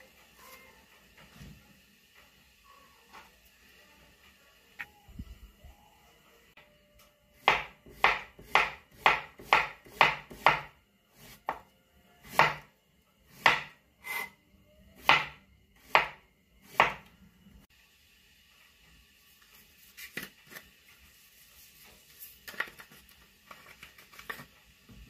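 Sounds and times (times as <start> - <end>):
knife chopping on plastic board: 7.4 - 10.7, 12.3 - 12.7, 13.3 - 13.8, 15.0 - 17.0.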